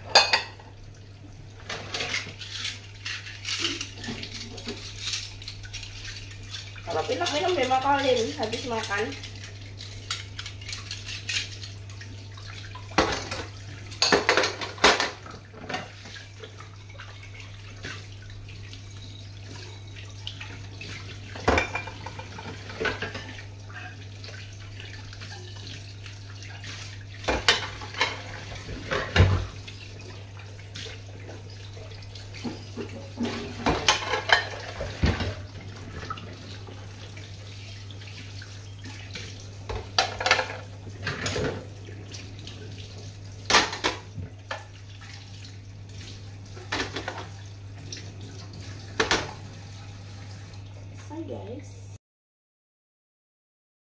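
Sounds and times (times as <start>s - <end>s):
dishes clattering: 0.0s - 0.7s, 1.6s - 11.8s, 12.8s - 16.2s, 20.8s - 24.0s, 27.2s - 29.6s, 32.4s - 36.5s, 38.9s - 42.3s, 43.5s - 44.7s, 46.6s - 47.4s, 48.9s - 49.4s
tap water running: 0.0s - 51.8s
cutlery clinking: 33.3s - 35.3s.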